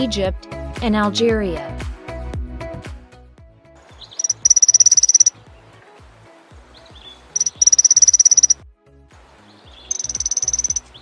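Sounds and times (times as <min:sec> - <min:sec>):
bird high-pitched trills: 0:04.1 - 0:05.3, 0:07.3 - 0:08.6, 0:09.9 - 0:11.0.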